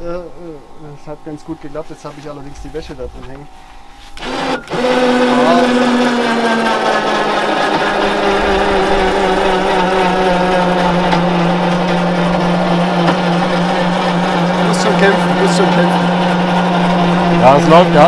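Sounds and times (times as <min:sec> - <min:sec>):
electric winch motor humming: 0:00.0 - 0:18.0.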